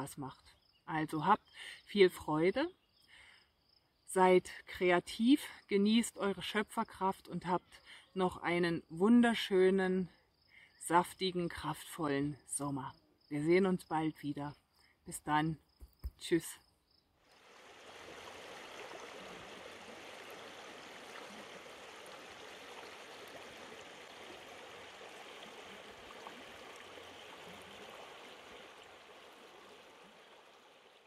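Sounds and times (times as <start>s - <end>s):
stream rushing over stones: 17.4s - 31.0s.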